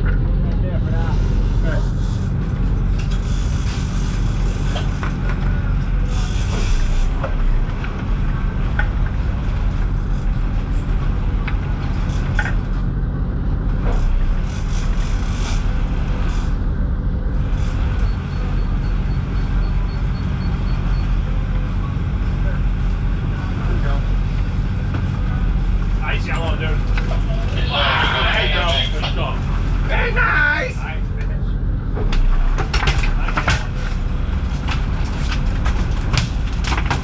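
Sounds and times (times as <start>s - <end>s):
boat engines droning: 0.0s - 37.0s
gear clicking and knocking: 32.0s - 37.0s.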